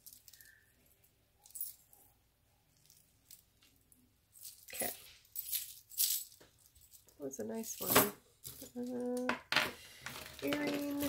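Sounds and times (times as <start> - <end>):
metal chains clinking: 0.0 - 0.6, 1.4 - 2.0, 4.3 - 9.0, 10.1 - 11.0.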